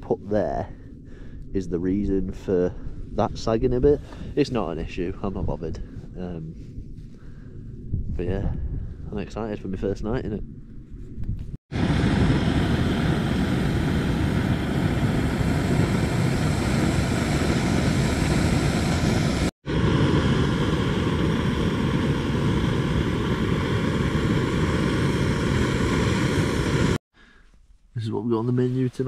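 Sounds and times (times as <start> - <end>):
gas stove burner hissing: 11.8 - 27.0.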